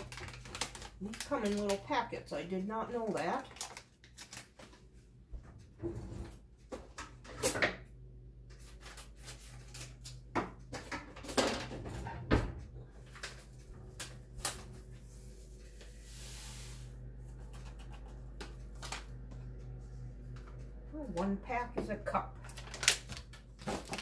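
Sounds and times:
knocks and clacks in kitchen: 0:05.3 - 0:08.7, 0:10.1 - 0:14.2, 0:17.3 - 0:22.7
steady low hum: 0:11.7 - 0:24.0.

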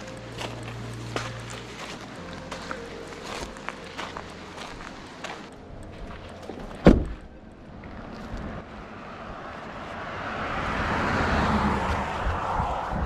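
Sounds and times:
rushing road noise: 0:00.0 - 0:13.0
truck door slamming: 0:06.6 - 0:07.2.

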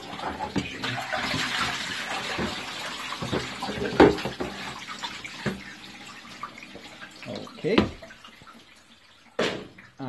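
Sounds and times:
coolant splashing: 0:00.0 - 0:10.0
plastic tub knocks: 0:07.7 - 0:08.0, 0:09.4 - 0:09.8.

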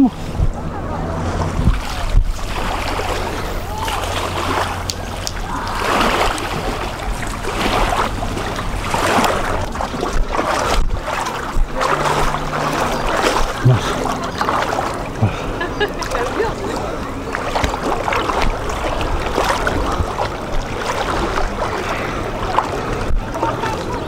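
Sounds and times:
wind on microphone: 0:00.0 - 0:14.3
water lapping and splashing: 0:00.0 - 0:24.0.

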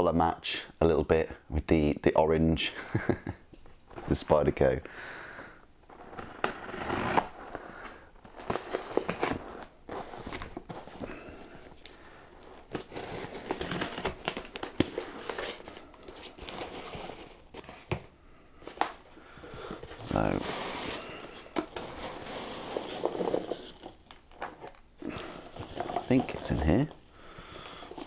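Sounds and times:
packaging crinkling and rustling: 0:07.5 - 0:17.9, 0:18.6 - 0:28.0
knife cutting parcel open: 0:12.7 - 0:15.8.

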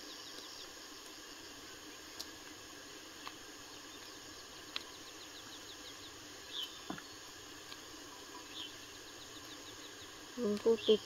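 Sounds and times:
high ticking chirps: 0:03.2 - 0:11.0.

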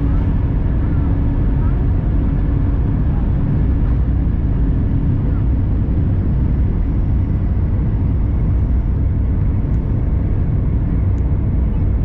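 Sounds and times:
airplane cabin engine rumble: 0:00.0 - 0:12.0.

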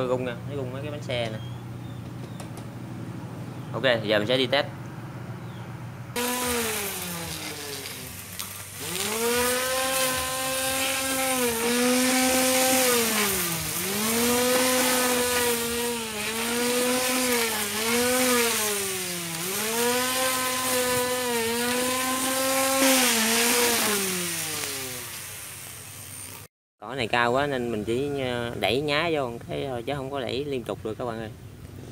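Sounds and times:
electric mower motor whining: 0:05.4 - 0:26.5.

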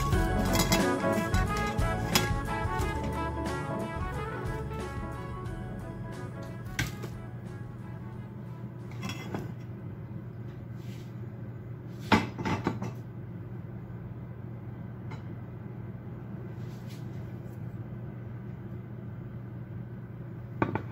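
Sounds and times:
low hum: 0:00.0 - 0:11.8.

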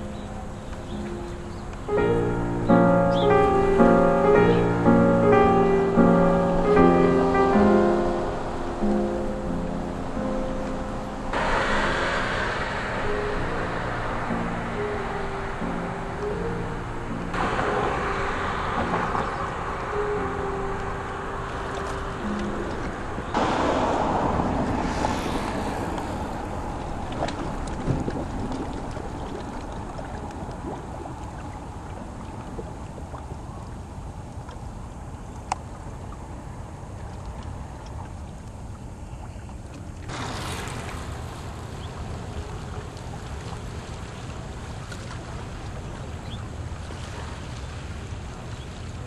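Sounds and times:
wind buffeting microphone: 0:10.8 - 0:39.0.

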